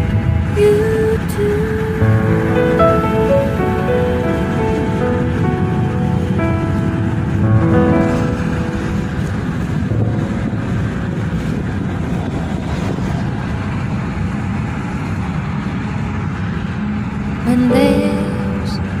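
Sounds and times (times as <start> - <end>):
car road noise at highway speed: 8.0 - 17.5.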